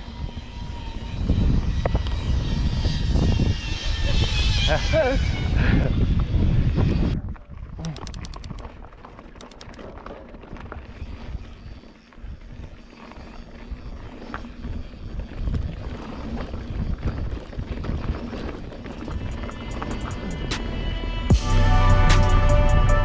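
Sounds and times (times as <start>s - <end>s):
bike rattling and clicking: 0.0s - 20.8s
wind on microphone: 0.0s - 20.9s
tyres crunching on gravel: 8.4s - 20.8s.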